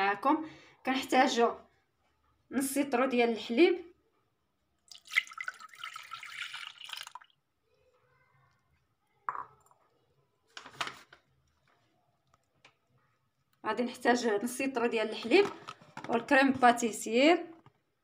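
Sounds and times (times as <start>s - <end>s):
milk pouring into saucepan: 4.8s - 7.6s.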